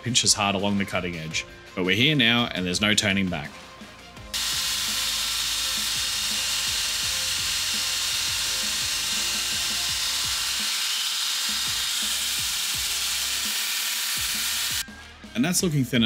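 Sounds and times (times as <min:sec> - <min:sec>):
background music with a beat: 0:00.0 - 0:10.6, 0:14.2 - 0:16.0
belt grinder high hiss: 0:04.3 - 0:14.8.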